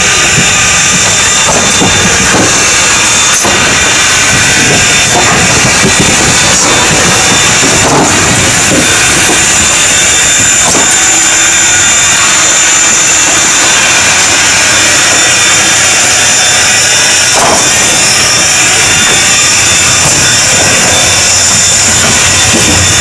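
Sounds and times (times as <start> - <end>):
steam locomotive hissing steam: 0.0 - 23.0
locomotive knock: 0.1 - 11.8, 16.7 - 23.0.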